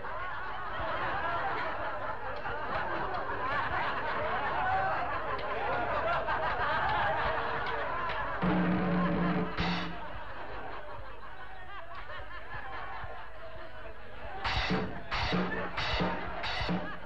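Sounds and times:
audience laughing: 0:00.0 - 0:17.0.

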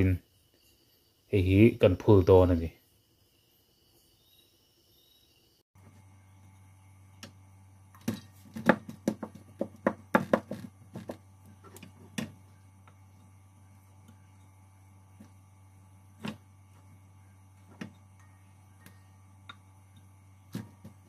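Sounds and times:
steady low hum: 0:05.1 - 0:21.0.

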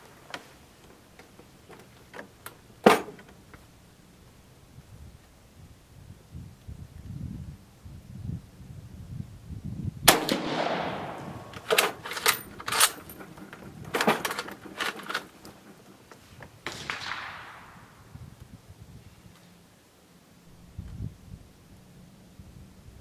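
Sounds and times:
rifle shot with echo: 0:10.1 - 0:11.8, 0:16.6 - 0:18.1
rifle bolt clacking: 0:10.1 - 0:13.2.

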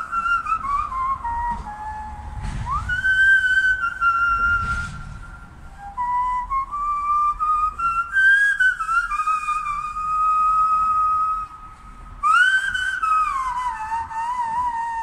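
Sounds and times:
hand flute whistled melody: 0:00.0 - 0:15.0.

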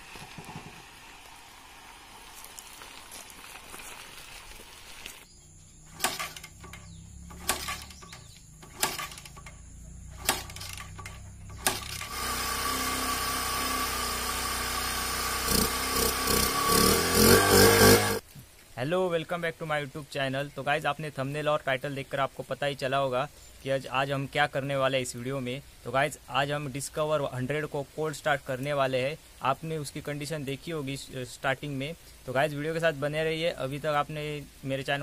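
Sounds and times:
motorcycle engine running: 0:05.9 - 0:18.2
motorcycle engine sharp knocks: 0:06.0 - 0:09.6, 0:10.2 - 0:12.1.

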